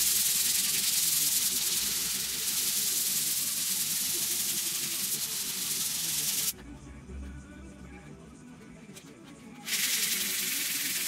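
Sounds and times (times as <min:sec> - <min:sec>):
sandpaper rubbing on wood: 0:00.0 - 0:06.5, 0:09.6 - 0:11.0.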